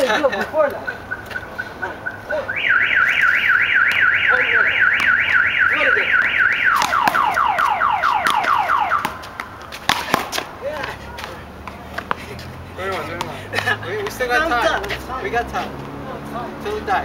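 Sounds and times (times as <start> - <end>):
car alarm siren: 0.8 - 9.3.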